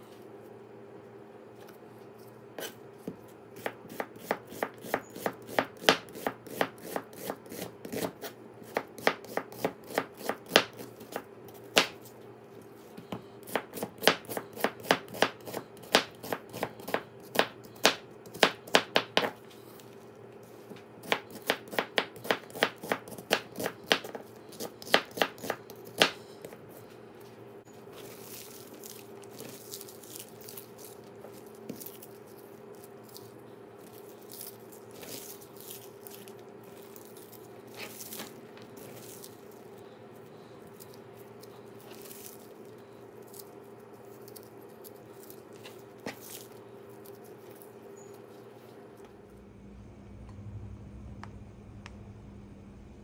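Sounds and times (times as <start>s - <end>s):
hand tossing sliced onion: 1.4s - 49.2s
knife slicing onion on board: 2.6s - 12.1s, 12.9s - 19.4s, 20.6s - 26.7s.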